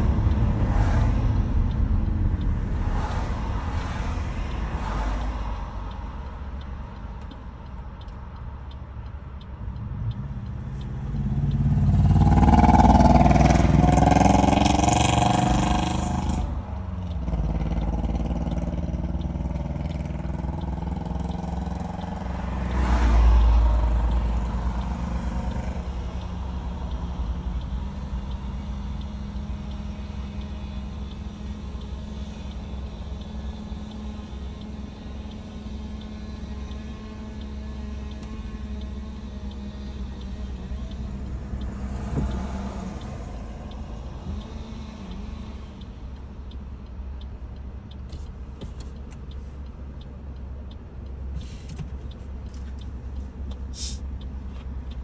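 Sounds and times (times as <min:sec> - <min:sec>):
vehicle passing by: 0:00.0 - 0:06.2, 0:09.7 - 0:29.0, 0:35.9 - 0:45.8
low traffic rumble and hum: 0:00.0 - 0:55.0.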